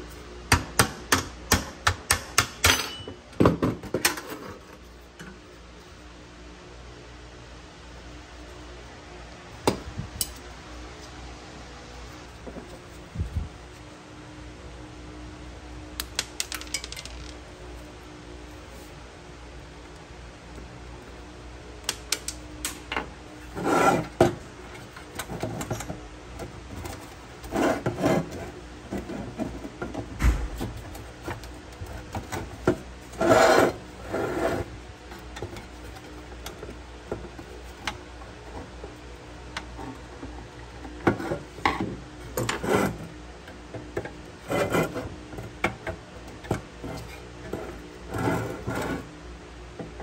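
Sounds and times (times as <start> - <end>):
steady low hum: 0.0 - 50.0
scraping and rubbing strokes: 23.4 - 24.2, 26.8 - 36.2, 46.8 - 49.1.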